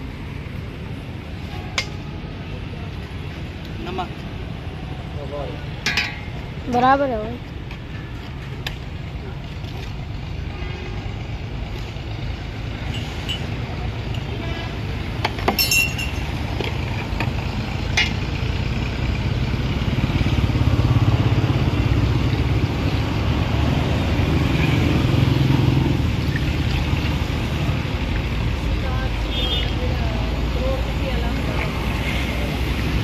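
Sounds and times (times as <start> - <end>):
spoon clinking on steel jug: 15.6 - 16.3.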